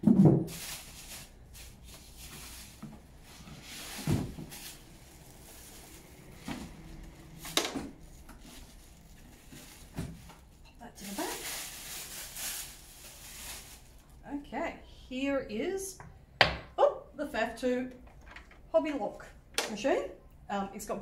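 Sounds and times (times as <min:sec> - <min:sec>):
cardboard and plastic rustling: 0:00.0 - 0:14.2.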